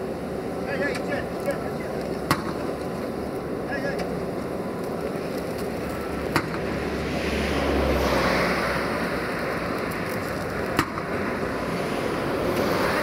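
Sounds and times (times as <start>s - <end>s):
heavy vehicle rumbling: 0.0s - 13.0s.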